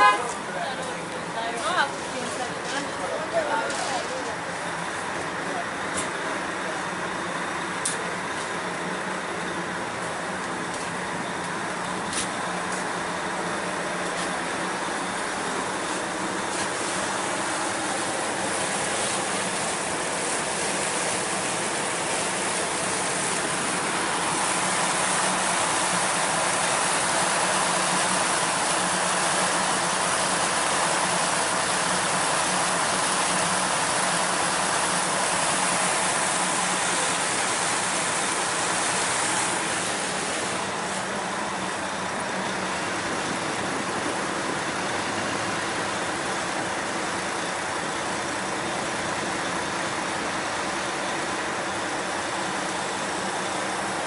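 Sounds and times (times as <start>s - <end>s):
water churning behind boat: 14.6s - 54.0s.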